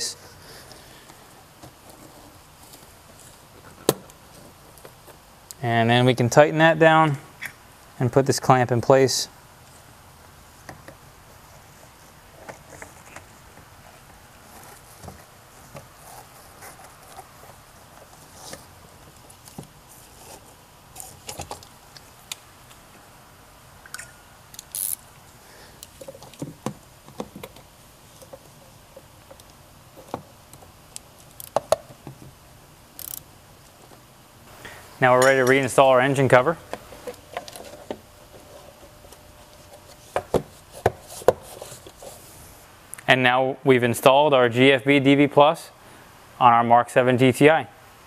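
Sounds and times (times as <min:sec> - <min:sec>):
parts being handled: 0:33.0 - 0:42.5.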